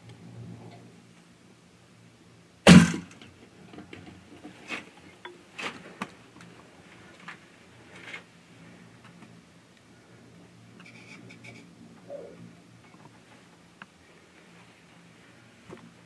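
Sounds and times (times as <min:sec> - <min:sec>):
sharp loud thump: 0:02.7 - 0:03.1.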